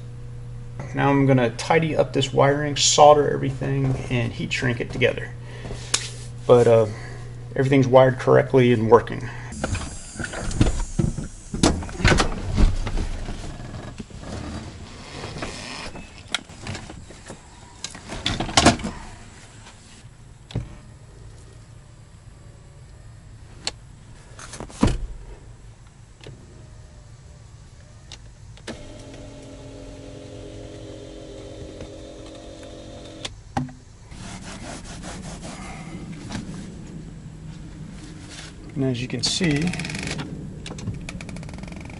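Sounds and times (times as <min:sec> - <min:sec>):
electric seat motor running: 0:09.4 - 0:12.0, 0:28.6 - 0:33.4.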